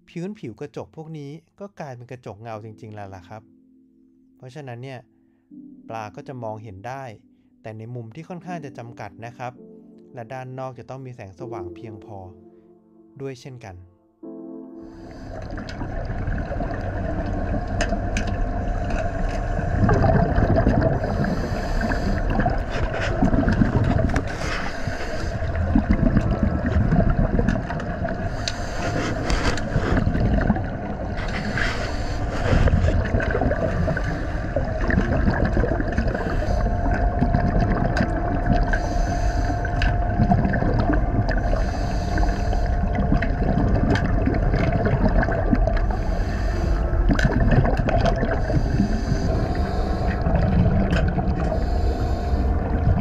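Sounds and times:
exhaled bubbles gurgling: 14.8 - 53.0
steady hum: 14.9 - 53.0.

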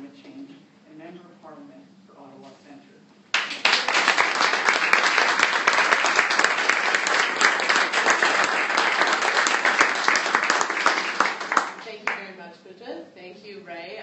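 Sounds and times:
audience applause: 3.3 - 12.2.

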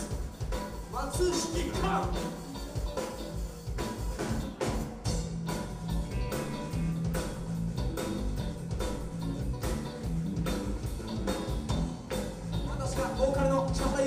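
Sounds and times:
drum kit beat: 0.0 - 14.0
electric guitars: 0.0 - 14.0
live rock band playing: 0.0 - 14.0
person singing: 1.1 - 2.5.

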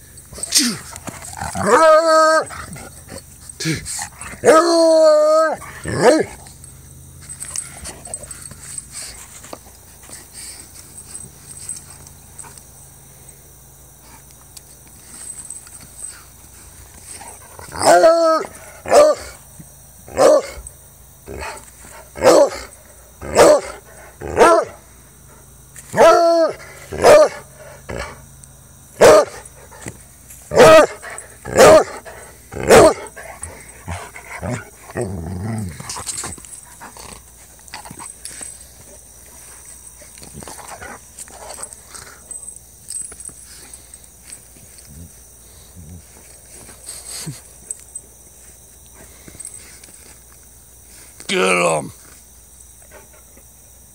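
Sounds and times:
dog barking and baying: 0.3 - 6.5, 17.6 - 19.4, 20.1 - 20.6, 22.2 - 24.8, 25.9 - 28.2, 29.0 - 29.8, 30.5 - 35.7
dog growling: 33.8 - 36.2.

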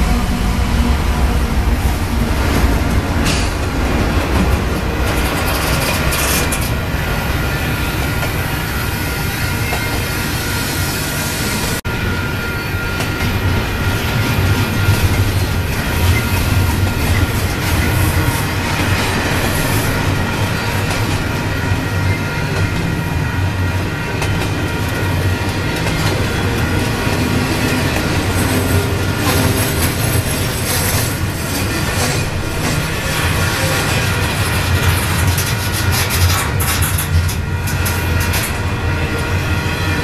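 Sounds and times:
train wheels rumbling on rails: 0.0 - 40.0
clatter over rail joints: 2.5 - 6.8, 27.6 - 38.6.

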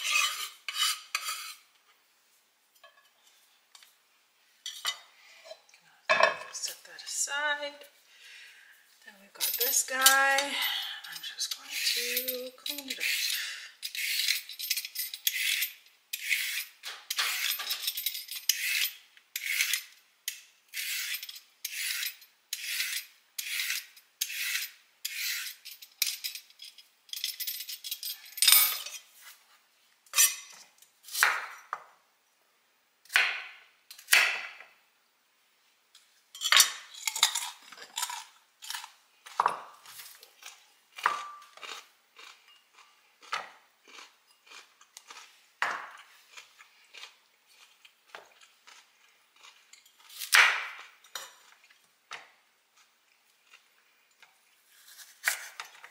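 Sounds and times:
peeler scraping carrot: 11.4 - 14.4, 15.2 - 17.5, 18.5 - 19.9, 20.7 - 25.6.

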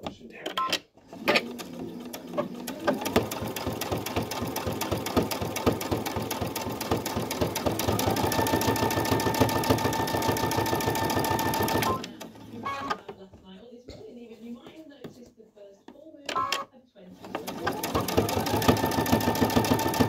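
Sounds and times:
sewing machine stitching: 1.0 - 13.2, 16.3 - 20.0.

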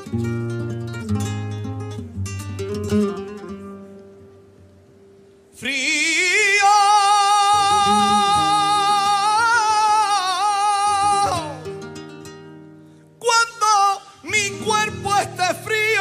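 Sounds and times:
acoustic guitar: 0.0 - 16.0
man singing flamenco: 5.5 - 16.0.

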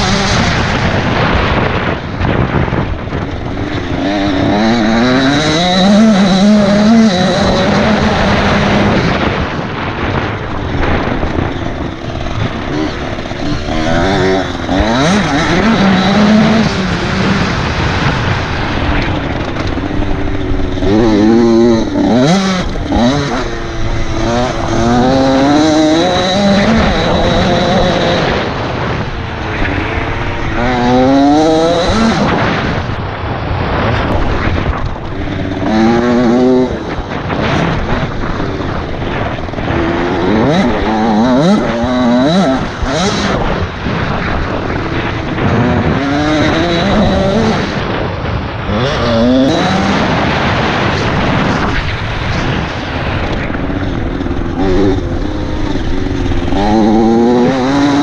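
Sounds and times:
motocross bike engine revving: 0.0 - 58.0
wind on the microphone: 0.0 - 58.0.

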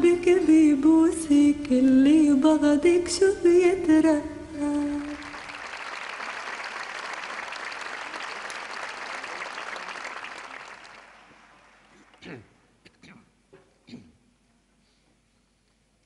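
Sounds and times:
woman singing: 0.0 - 5.4
audience applauding: 4.9 - 12.2.

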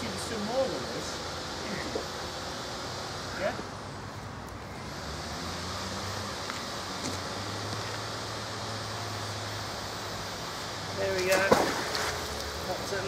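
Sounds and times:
distant road traffic rumble: 0.0 - 13.0
low engine hum: 0.0 - 13.0.

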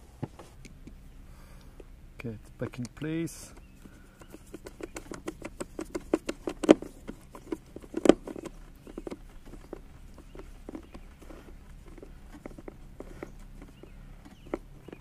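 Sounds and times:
small clicks and taps: 1.7 - 15.0.

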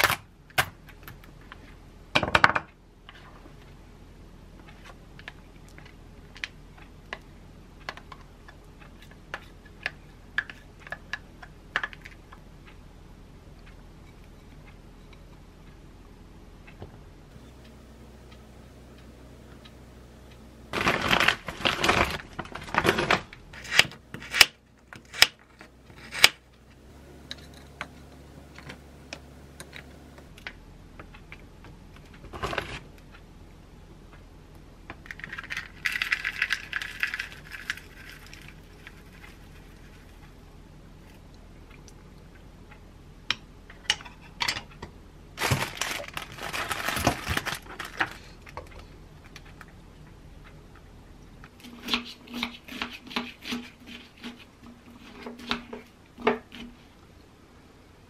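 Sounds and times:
packet rustling: 20.7 - 23.3, 45.4 - 48.5
hard pieces clicking into bowl: 35.1 - 38.5.

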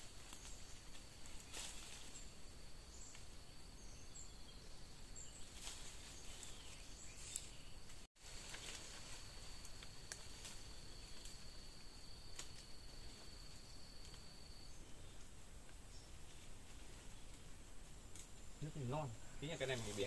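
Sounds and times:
branches rustling and clicking: 0.0 - 3.4, 5.2 - 20.0
high insect tone: 0.0 - 20.0
faint bird chirps: 0.3 - 8.7.

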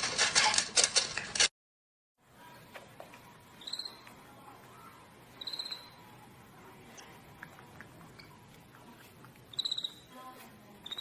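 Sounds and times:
high-pitched animal squeaks: 3.6 - 4.0, 5.3 - 6.0, 9.5 - 10.1.

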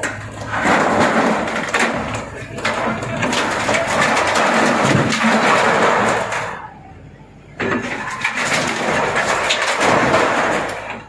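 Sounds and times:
concrete and metal cracking and crashing: 0.0 - 6.6, 7.6 - 11.0
excavator engine: 0.0 - 11.0.

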